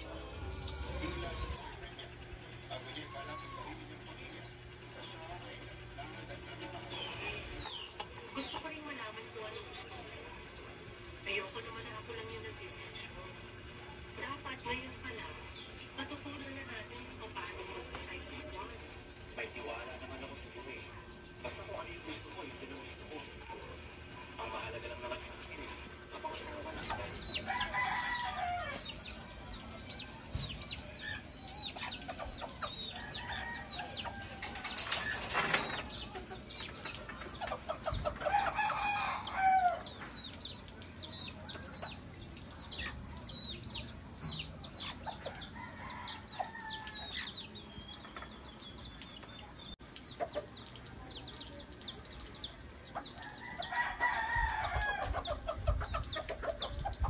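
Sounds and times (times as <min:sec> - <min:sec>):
chicks peeping: 0:06.2 - 0:10.0, 0:25.6 - 0:57.0
hens clucking: 0:19.6 - 0:57.0.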